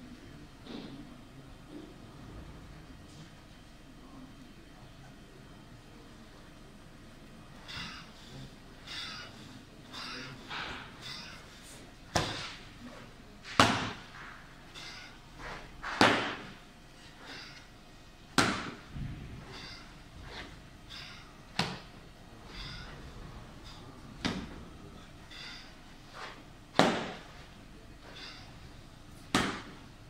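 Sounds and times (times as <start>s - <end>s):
soft movement sounds: 7.2s - 18.2s, 18.8s - 30.0s.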